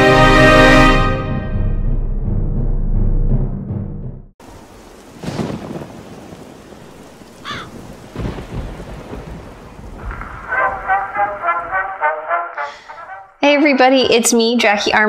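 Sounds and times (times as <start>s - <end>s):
brass band music: 0.0s - 2.5s, 10.4s - 13.4s
thunder rolling: 4.4s - 12.0s
steady rain: 4.4s - 12.3s.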